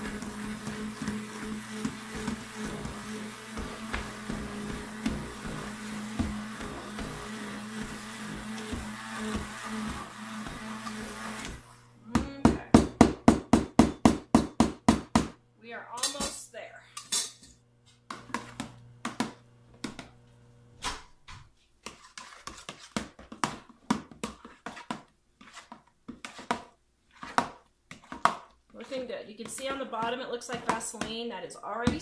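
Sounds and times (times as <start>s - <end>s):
spoon stirring and scraping plastic: 0.0s - 11.8s, 21.8s - 32.0s
stick blender running: 0.0s - 13.0s.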